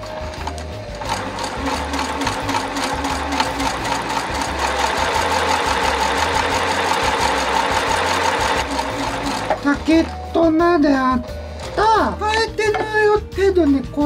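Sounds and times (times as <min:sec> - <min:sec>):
sewing machine clattering: 0:00.0 - 0:10.4.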